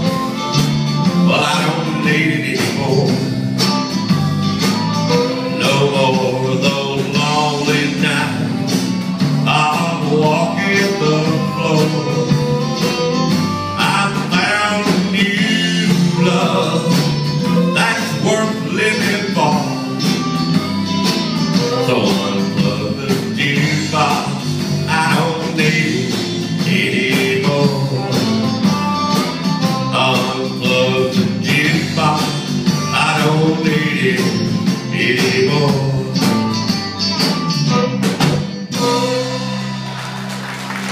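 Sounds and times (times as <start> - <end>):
electric guitar: 0.0 - 40.9
fiddle lead: 0.0 - 40.9
steady drum beat: 0.0 - 40.9.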